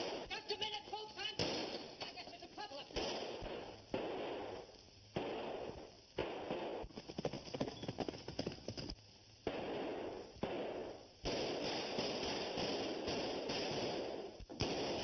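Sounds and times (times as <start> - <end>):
film soundtrack hiss: 0.0 - 15.0
rapid sharp clatters: 6.2 - 9.0.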